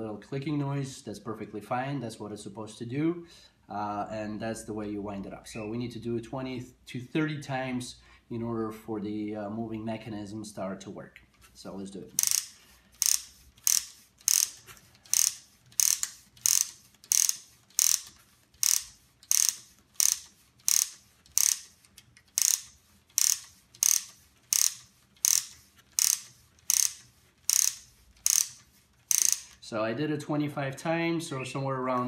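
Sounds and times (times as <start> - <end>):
wooden ratchet clicking: 12.1 - 29.7.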